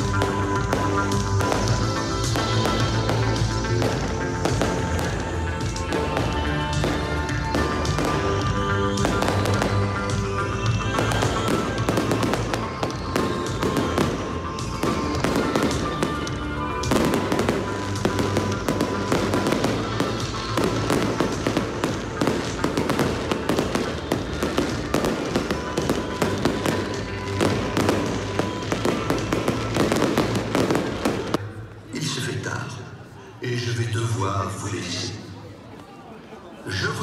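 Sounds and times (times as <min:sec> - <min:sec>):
fireworks bursting and crackling: 0:00.0 - 0:31.4.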